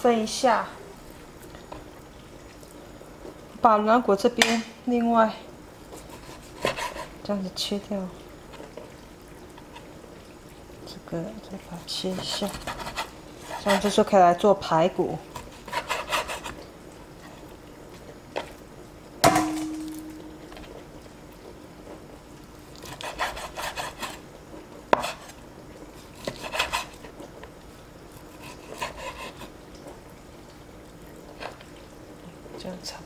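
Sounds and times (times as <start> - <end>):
blade slicing and scraping meat: 12.1 - 14.0, 22.8 - 24.2, 26.0 - 27.0, 28.2 - 29.5
sharp knock: 19.2 - 20.2.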